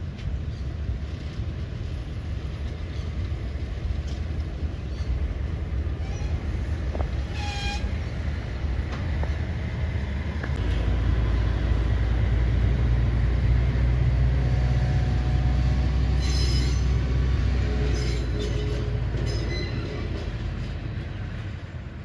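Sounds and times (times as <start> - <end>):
diesel locomotive engine running: 0.0 - 22.0
high-pitched wheel squeals: 7.3 - 7.9, 16.2 - 17.1, 17.8 - 20.1.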